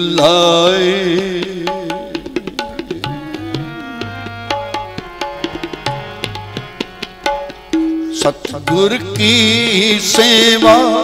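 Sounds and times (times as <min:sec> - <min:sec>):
tabla strokes: 0:00.0 - 0:11.0
harmonium held notes: 0:02.9 - 0:11.0.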